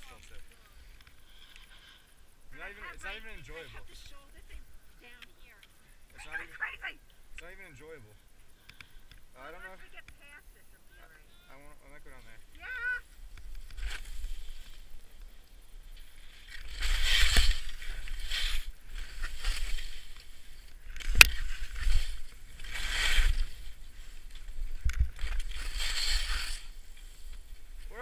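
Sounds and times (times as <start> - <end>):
skis scraping over snow: 16.2 - 28.0.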